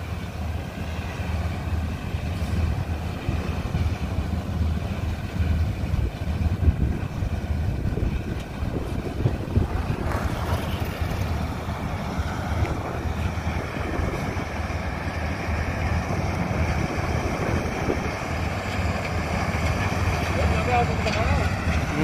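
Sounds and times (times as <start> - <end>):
combine harvester drone: 0.0 - 22.0
wind buffeting microphone: 0.0 - 22.0.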